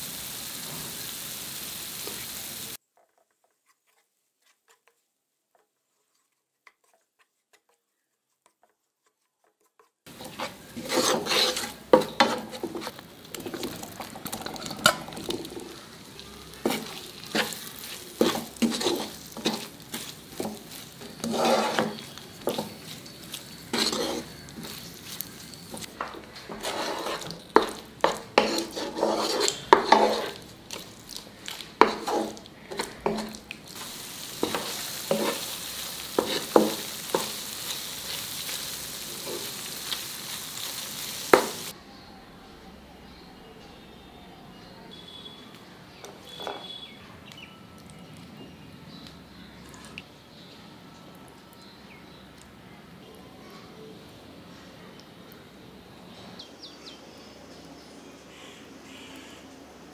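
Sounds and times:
gravy sizzling: 0:00.0 - 0:02.8, 0:10.1 - 0:41.8
wooden spatula scraping a pan: 0:02.9 - 0:41.7.

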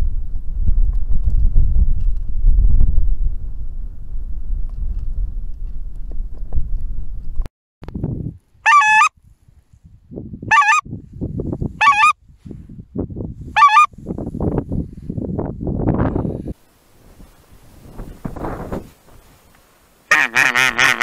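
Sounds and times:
wind rumbling on microphone: 0:00.0 - 0:19.8
goose call honks: 0:08.7 - 0:09.1, 0:10.5 - 0:10.8, 0:11.8 - 0:12.2, 0:13.6 - 0:13.9, 0:20.1 - 0:21.0.

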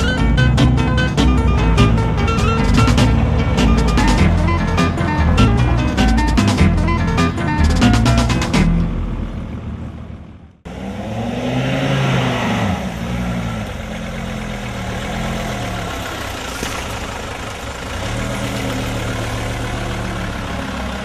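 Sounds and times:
music: 0:00.0 - 0:08.8
off-road vehicle engine revving: 0:00.0 - 0:21.0.

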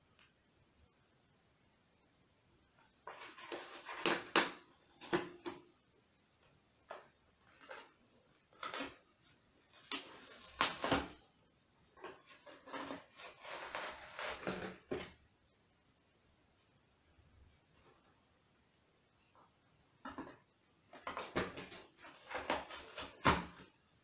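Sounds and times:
cat scratching cardboard box: 0:03.0 - 0:05.1, 0:12.0 - 0:15.2, 0:20.9 - 0:23.7.

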